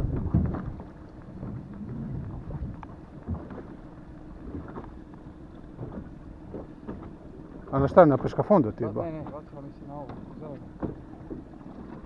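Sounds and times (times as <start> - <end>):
wind gusting on microphone: 0.0 - 3.5.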